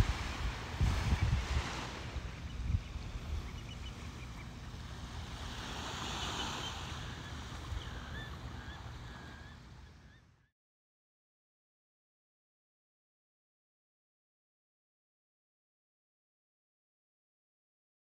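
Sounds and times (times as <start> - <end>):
wind on microphone: 0.0 - 9.6
small waves washing on beach: 0.0 - 9.8
bird chirping: 2.4 - 4.8, 6.0 - 10.5.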